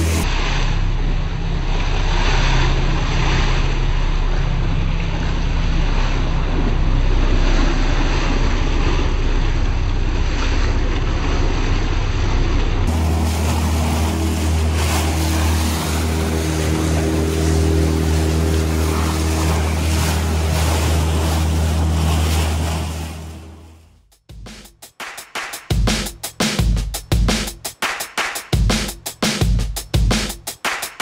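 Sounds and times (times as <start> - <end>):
boat motor running: 0.0 - 24.6
river rapids rushing: 12.9 - 23.4.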